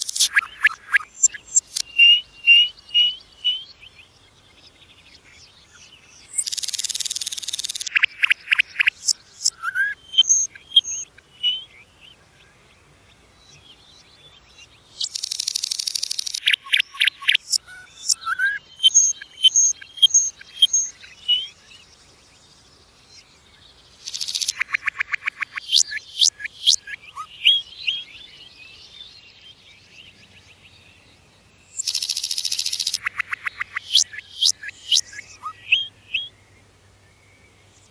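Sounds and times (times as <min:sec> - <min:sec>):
nightingale singing: 0:00.0 - 0:12.6, 0:13.2 - 0:37.9
nightingale whistled notes: 0:00.2 - 0:03.6
nightingale rattling trill: 0:15.1 - 0:16.5, 0:31.8 - 0:34.0.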